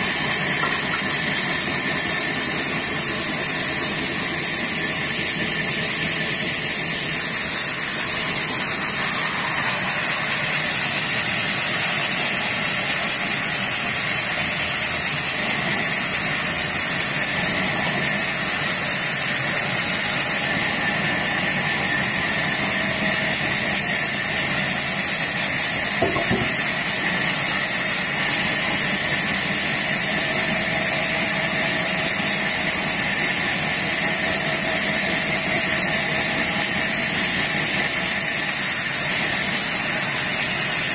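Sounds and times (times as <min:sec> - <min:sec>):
band saw cutting log: 0:00.0 - 0:40.9.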